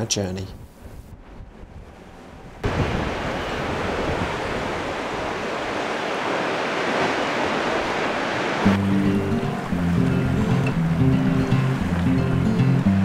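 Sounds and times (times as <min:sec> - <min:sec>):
ocean surf rushing: 0:00.0 - 0:13.0
music: 0:08.7 - 0:13.0.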